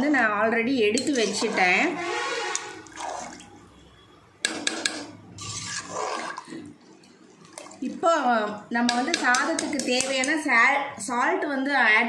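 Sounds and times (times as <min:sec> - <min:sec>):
liquid sloshing in pot: 0:00.9 - 0:10.5
ladle knocking against pot: 0:04.4 - 0:05.2, 0:08.8 - 0:10.4.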